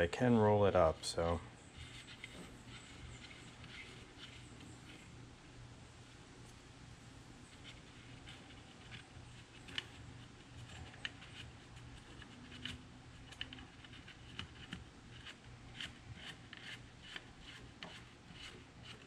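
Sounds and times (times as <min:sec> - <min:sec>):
sunshade roller clicks and rustles: 0:01.1 - 0:05.2.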